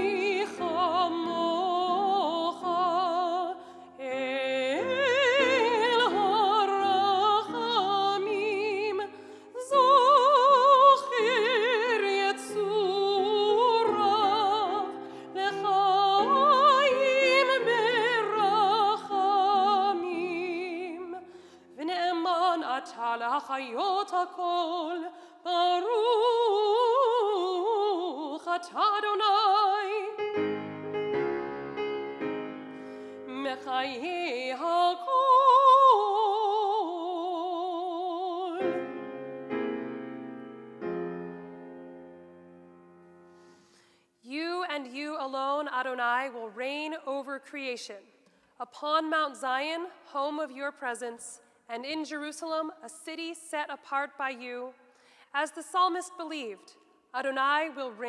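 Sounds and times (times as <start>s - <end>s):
piano chords: 0.0s - 3.6s, 9.8s - 21.2s, 29.2s - 34.2s, 38.2s - 43.4s
person singing with wide vibrato: 0.0s - 41.6s.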